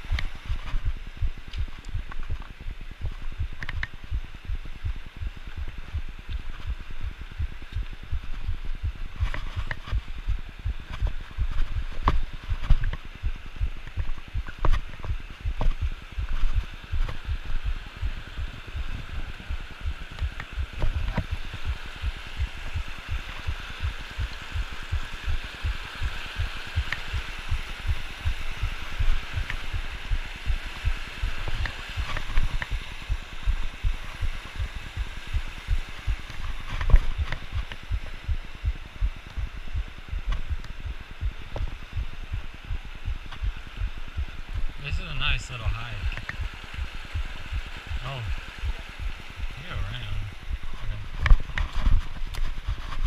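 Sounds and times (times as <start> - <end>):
thuds and knocks of walking: 0.0 - 19.2
creek rushing over rocks: 0.0 - 53.0.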